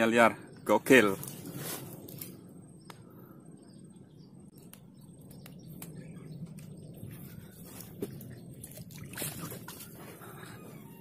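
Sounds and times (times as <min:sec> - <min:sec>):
faint birds chirping: 0:00.0 - 0:11.0
low steady rumble: 0:00.0 - 0:11.0.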